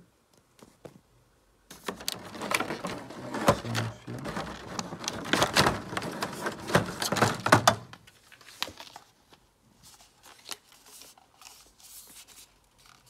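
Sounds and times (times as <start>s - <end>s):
plastic packaging crinkling: 1.7s - 9.2s.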